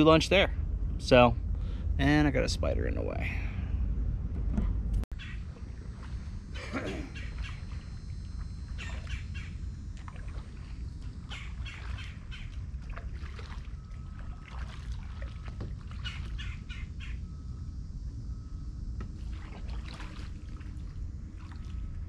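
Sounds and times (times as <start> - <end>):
low rumble: 0.0 - 22.0
birds squawking and chirping: 5.2 - 5.5, 6.6 - 7.8, 8.7 - 9.6, 11.2 - 12.8, 15.9 - 17.4
paddle splashing and dripping: 7.1 - 16.9, 19.0 - 22.0.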